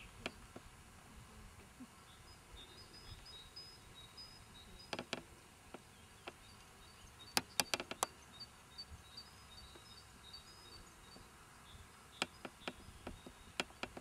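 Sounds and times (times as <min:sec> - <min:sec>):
faint high-pitched chirping: 0:01.8 - 0:14.0
sharp clicks: 0:07.3 - 0:08.1.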